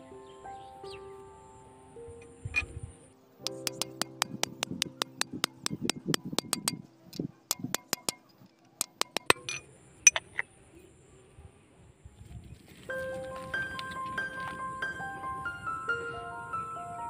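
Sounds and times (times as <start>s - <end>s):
hammer tapping on steel bar: 3.4s - 10.4s.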